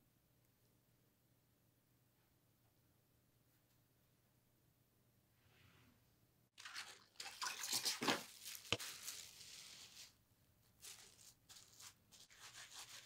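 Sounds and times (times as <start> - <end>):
plastic sheet crinkling: 6.6 - 13.0.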